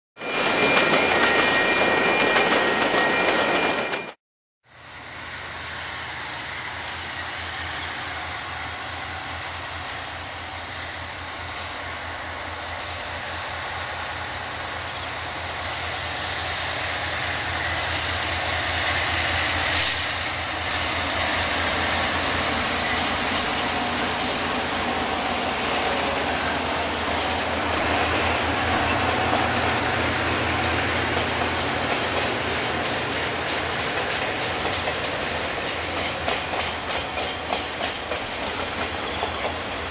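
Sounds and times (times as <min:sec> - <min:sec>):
train wheels clickety-clack: 0:00.2 - 0:04.2, 0:16.1 - 0:39.9
diesel locomotive engines: 0:00.2 - 0:39.9.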